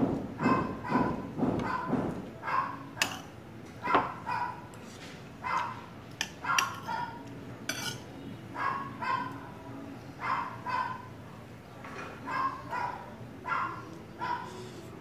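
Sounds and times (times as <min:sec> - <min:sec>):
cutlery clinking on dishes: 0:03.0 - 0:03.4, 0:06.1 - 0:08.1.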